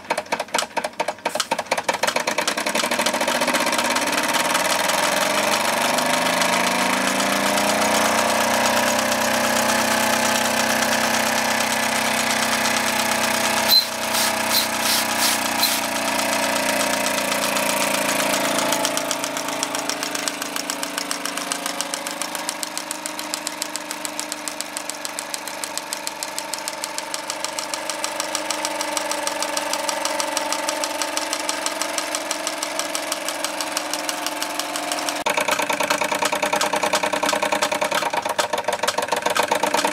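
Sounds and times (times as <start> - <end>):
toy steam engine chuffing: 0.0 - 39.9
sharp click: 13.6 - 16.0, 16.8 - 39.9.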